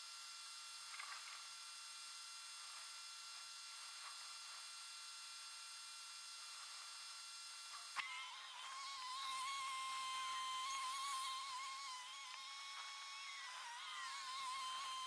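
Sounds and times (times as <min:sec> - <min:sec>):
faint hum and hiss: 0:00.0 - 0:15.0
steady held tone: 0:08.0 - 0:15.0.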